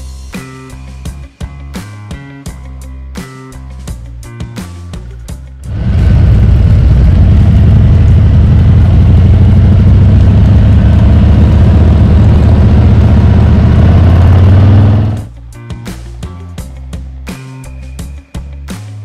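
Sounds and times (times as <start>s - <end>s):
rushing noise: 5.7s - 15.3s
motorcycle engine running: 5.7s - 16.2s.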